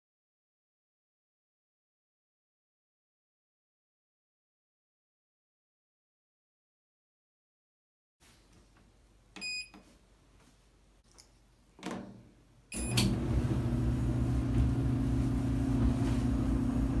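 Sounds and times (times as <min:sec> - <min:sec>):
dryer motor humming: 0:12.8 - 0:17.0.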